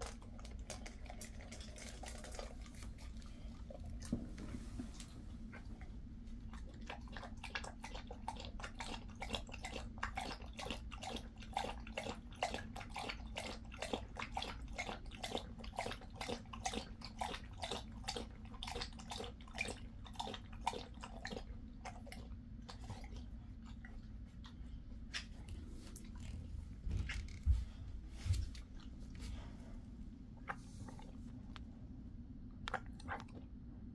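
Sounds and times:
dog lapping water from metal bowl: 0.0s - 4.7s, 6.5s - 24.6s.

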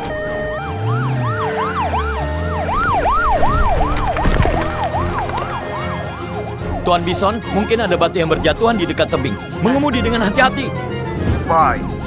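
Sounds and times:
cartoon siren wailing: 0.0s - 7.6s
background music: 0.0s - 12.0s.

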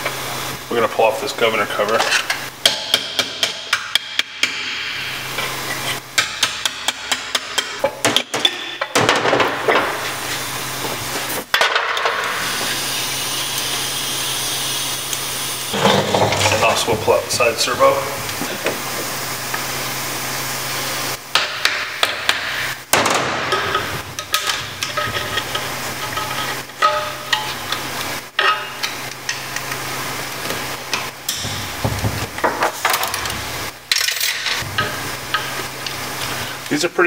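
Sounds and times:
steady low hum: 9.5s - 37.0s
screwdriver scraping on metal: 23.5s - 27.8s.

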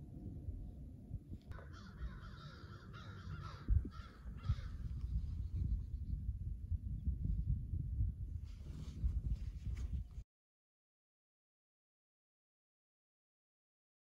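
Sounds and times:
low steady rumble: 0.0s - 10.2s
crow cawing: 1.5s - 4.9s.

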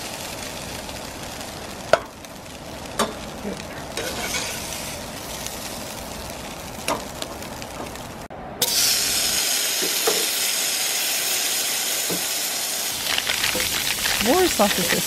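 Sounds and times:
fat sizzling in a skillet: 0.0s - 15.0s
food frying in a pot: 0.0s - 15.0s.

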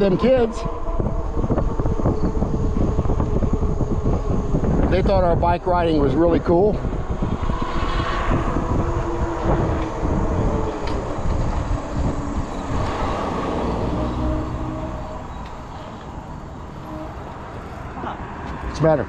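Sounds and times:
electric motor whine: 0.0s - 17.4s
wind rushing over microphone: 0.0s - 19.0s
tyres rolling on pavement: 5.9s - 19.0s.

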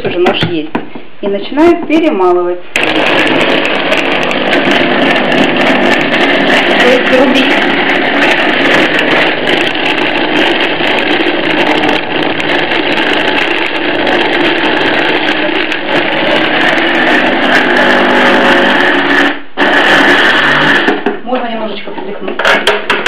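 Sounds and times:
hand blender motor running: 2.8s - 21.2s.

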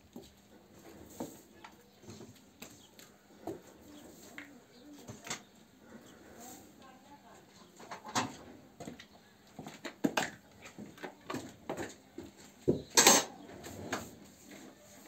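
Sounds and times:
cow eating at concrete trough: 0.0s - 5.2s.

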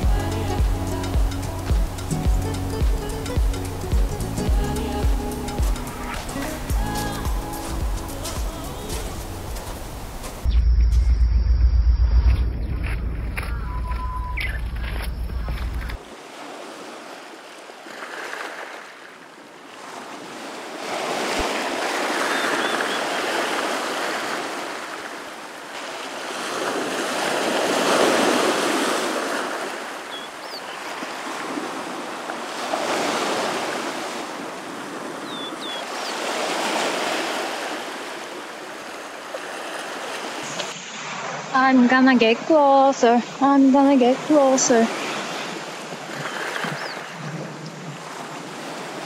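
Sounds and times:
ocean surf breaking: 12.3s - 49.0s.

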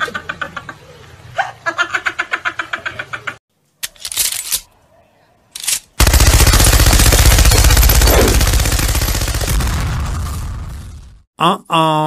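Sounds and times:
machine gun fire: 6.0s - 10.9s.

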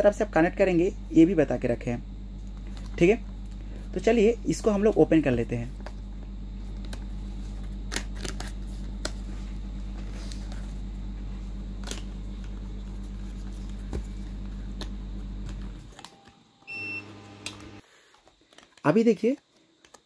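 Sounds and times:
steady low hum: 0.0s - 17.9s
cardboard packaging clicks and snaps: 7.8s - 9.2s, 11.8s - 12.6s, 18.2s - 20.0s.

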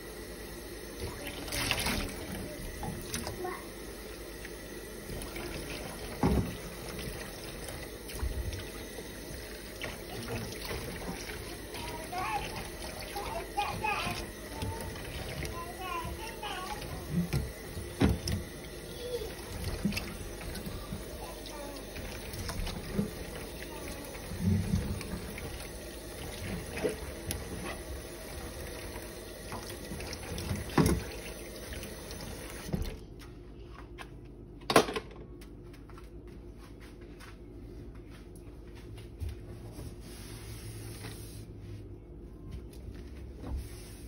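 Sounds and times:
faucet running into sink: 0.6s - 33.0s.

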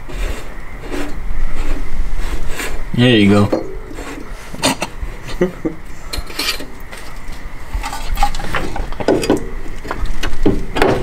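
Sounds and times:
light metallic clinks and taps: 6.1s - 6.7s.

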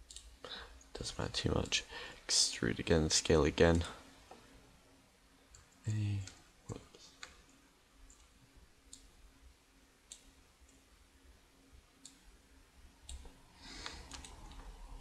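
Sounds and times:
mouse and keyboard clicks: 13.1s - 14.7s.

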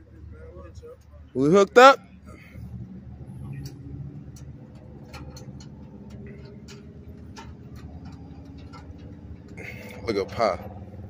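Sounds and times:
truck engine idling: 0.0s - 11.0s
metal clicks and taps: 3.6s - 9.6s.

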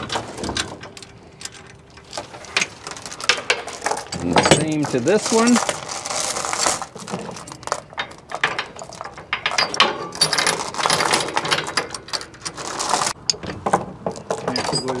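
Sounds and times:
steel chain rattling and clinking: 0.0s - 15.0s.

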